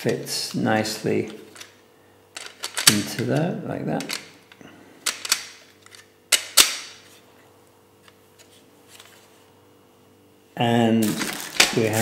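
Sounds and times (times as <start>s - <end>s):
plastic pieces clicking: 2.4s - 3.4s, 4.0s - 6.9s.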